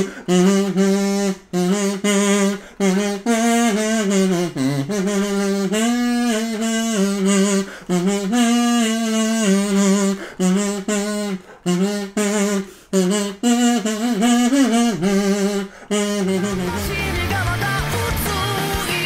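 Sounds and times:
kazoo playing a melody: 0:00.0 - 0:19.0.

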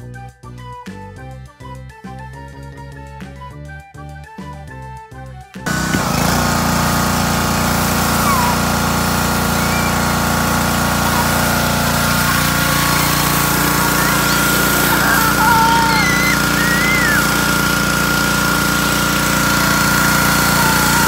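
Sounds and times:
pressure washer engine running: 0:05.7 - 0:21.0
spray wand hissing water: 0:05.7 - 0:21.0.

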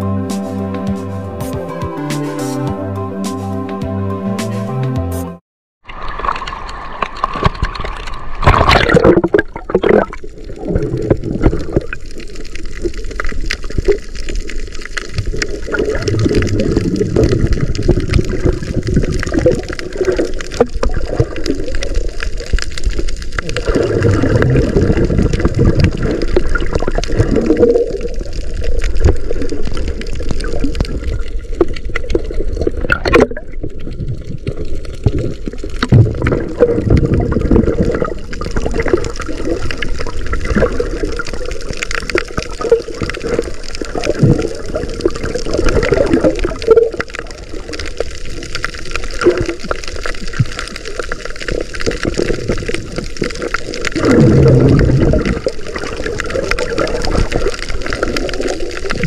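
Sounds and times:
gurgling bubbles: 0:05.9 - 0:59.0
underwater water sloshing: 0:05.9 - 0:59.0.

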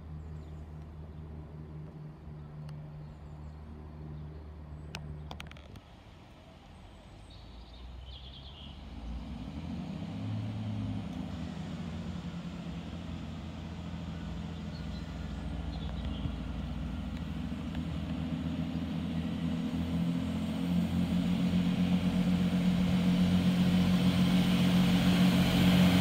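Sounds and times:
diesel train engine drone: 0:00.0 - 0:26.0
bird chirps: 0:14.1 - 0:16.5.

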